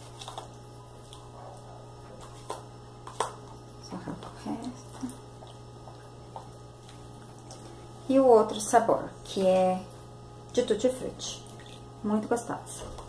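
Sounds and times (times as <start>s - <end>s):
steady low hum: 0.0s - 13.0s
gelatin squelching: 11.2s - 12.1s.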